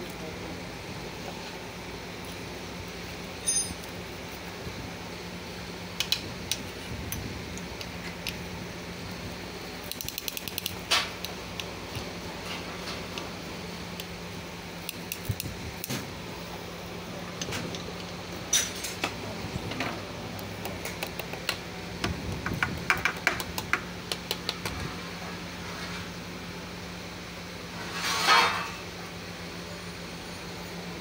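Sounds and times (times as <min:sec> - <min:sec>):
electric fan hum: 0:00.0 - 0:31.0
metal clicks and clinks: 0:03.4 - 0:03.9.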